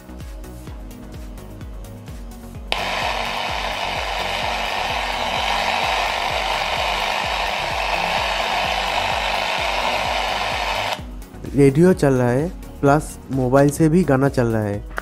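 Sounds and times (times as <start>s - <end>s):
song with steady beat: 0.0s - 11.6s
radio static hiss: 2.8s - 11.0s.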